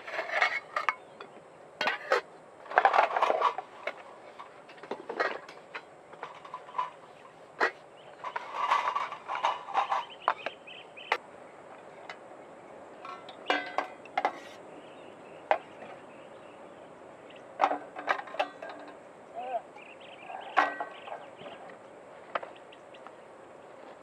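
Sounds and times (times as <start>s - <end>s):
metal mugs clinking: 13.1s - 14.3s.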